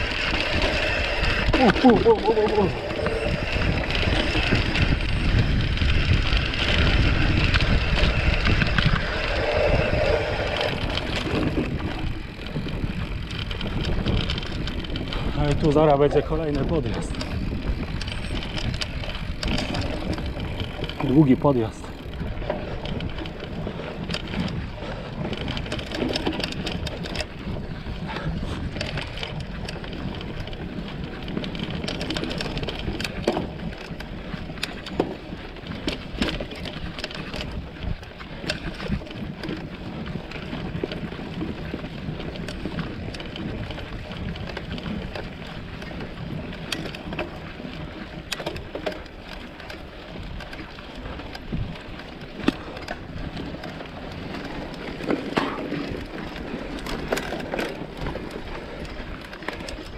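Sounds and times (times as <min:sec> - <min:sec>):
bike clicks and rattles: 0:00.0 - 0:59.9
bike tyre rumble on dirt: 0:00.0 - 0:59.9.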